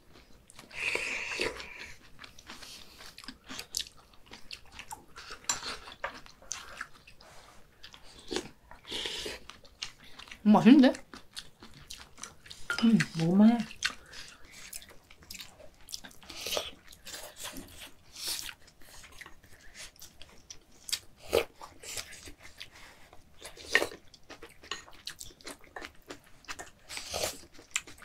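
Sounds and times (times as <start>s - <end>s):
people chewing and sipping: 0.0s - 28.0s.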